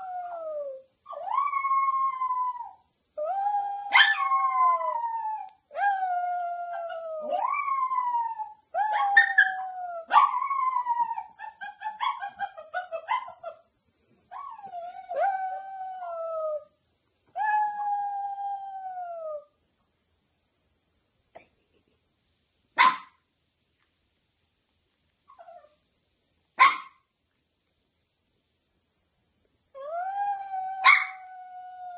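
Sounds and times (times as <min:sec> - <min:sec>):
dog howling and yipping: 0:00.0 - 0:13.6, 0:14.3 - 0:16.7, 0:29.8 - 0:31.9.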